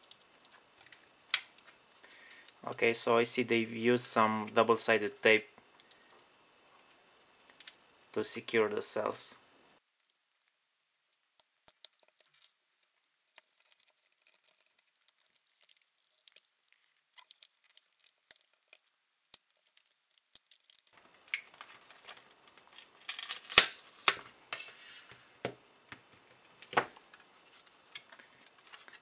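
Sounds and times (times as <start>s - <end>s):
tape and plastic tearing: 11.2s - 24.2s.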